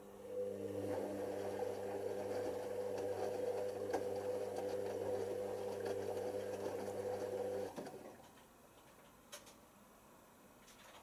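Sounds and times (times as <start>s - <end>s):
washing machine motor humming: 0.0s - 8.3s.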